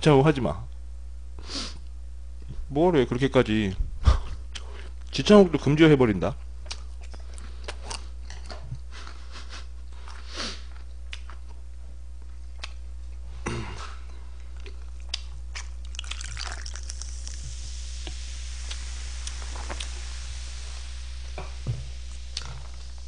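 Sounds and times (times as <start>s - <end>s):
low hum: 0.0s - 23.0s
person chewing: 6.6s - 11.6s, 12.2s - 17.4s, 22.2s - 22.8s
soda fizzing as poured: 15.9s - 22.8s.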